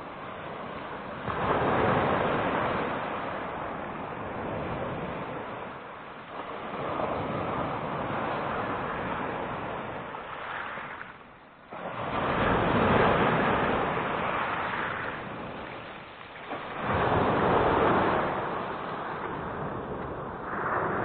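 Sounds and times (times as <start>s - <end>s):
waves washing on shore: 0.0s - 21.0s.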